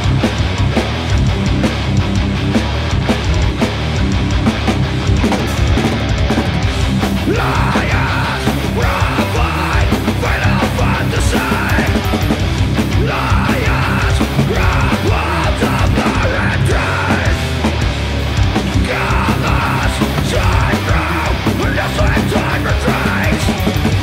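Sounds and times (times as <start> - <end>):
distorted guitars and bass: 0.0 - 24.0
drums and cymbals: 0.0 - 24.0
harsh shouted vocals: 6.5 - 17.9, 18.5 - 24.0.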